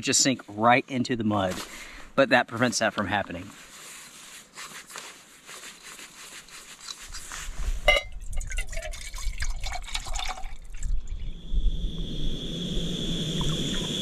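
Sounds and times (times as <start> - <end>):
water pouring into metal pot: 8.2 - 11.3.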